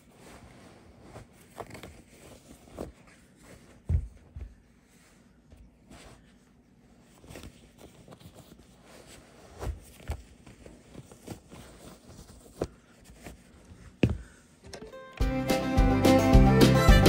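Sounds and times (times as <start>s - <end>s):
boot footsteps on wooden floor: 14.0s - 14.4s.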